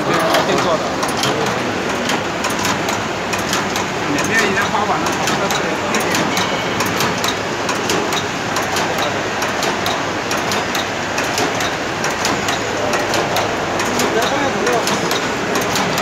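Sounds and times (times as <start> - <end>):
steady background noise: 0.0 - 16.0
machine mechanism clicking sharply: 0.1 - 16.0.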